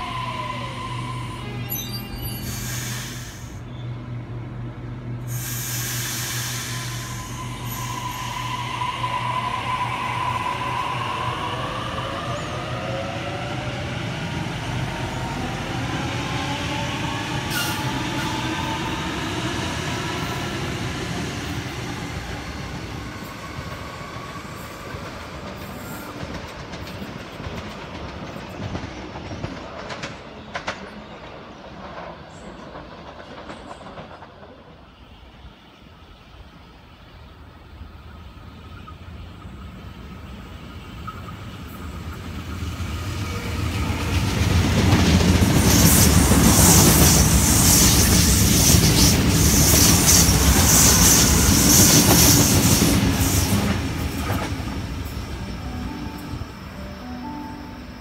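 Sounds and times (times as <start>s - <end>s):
train clacking over track: 5.3s - 35.4s, 40.4s - 57.8s
wheel and rail noise: 21.8s - 35.8s.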